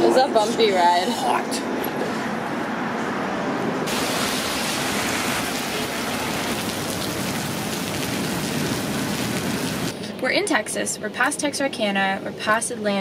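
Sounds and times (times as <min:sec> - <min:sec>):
heavy rain pouring: 0:03.9 - 0:10.0.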